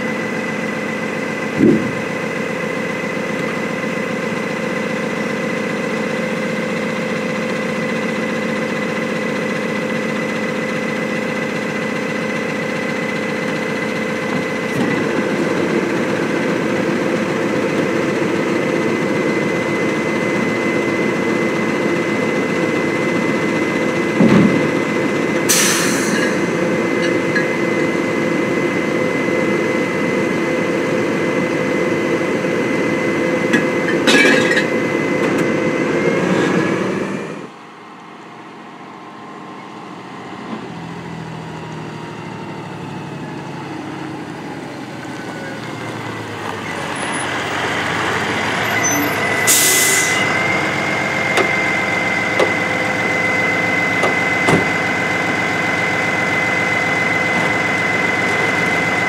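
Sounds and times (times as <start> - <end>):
diesel truck engine: 0.0 - 59.0
clunk: 24.2 - 24.7, 33.5 - 35.5, 54.0 - 54.9
air brake hiss: 25.5 - 26.3, 49.5 - 50.2.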